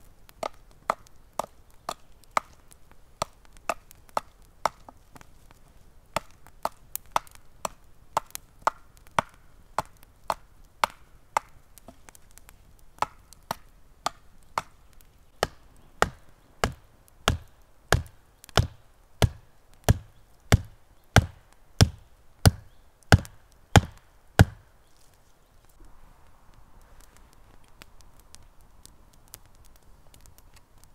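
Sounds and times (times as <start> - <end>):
hatchet chopping wood: 0.4 - 2.6, 3.2 - 5.0, 6.2 - 12.0, 13.0 - 14.8, 15.4 - 24.6.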